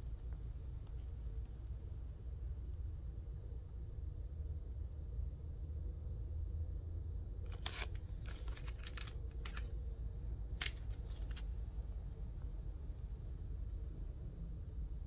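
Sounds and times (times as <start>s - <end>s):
steady low rumble: 0.0s - 15.0s
plastic bag crinkling: 7.5s - 9.7s.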